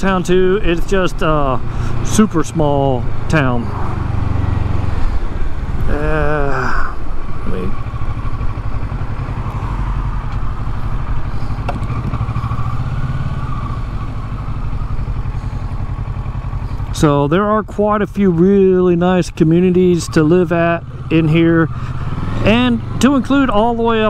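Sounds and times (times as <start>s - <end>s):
motorcycle engine running: 0.0s - 24.0s
person speaking: 5.8s - 7.8s.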